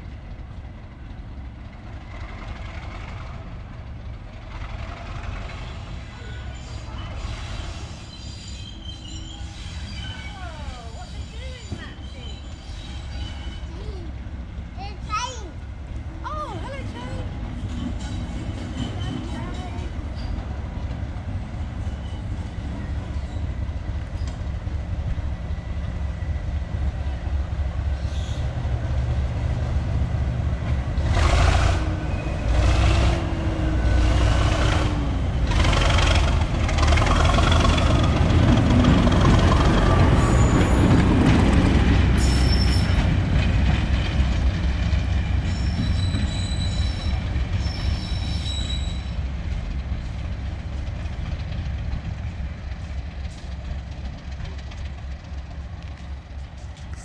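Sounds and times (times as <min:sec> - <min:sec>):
train rumbling on rails: 0:00.0 - 0:57.0
high wheel squeals: 0:05.6 - 0:13.9, 0:18.0 - 0:20.5, 0:21.8 - 0:24.4, 0:28.0 - 0:28.6, 0:32.0 - 0:32.7, 0:40.0 - 0:41.1, 0:42.2 - 0:43.1, 0:45.4 - 0:49.3
train knocks: 0:11.3 - 0:12.3, 0:28.4 - 0:48.2.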